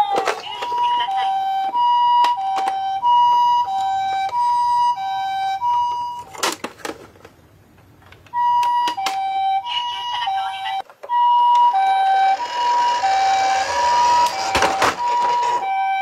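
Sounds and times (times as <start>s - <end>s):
toy siren two-tone wail: 0.6s - 6.3s, 8.4s - 16.0s
plastic toy clicks and knocks: 2.2s - 2.8s.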